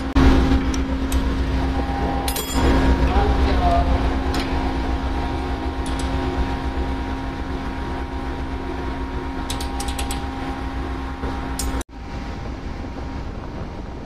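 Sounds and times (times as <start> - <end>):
engine room machinery hum: 0.0 - 14.0
spanner clicking on bolts: 9.5 - 10.2.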